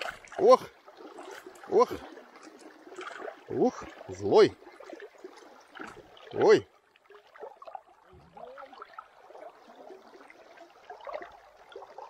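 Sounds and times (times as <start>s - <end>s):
fish splashing at water surface: 0.0s - 6.4s.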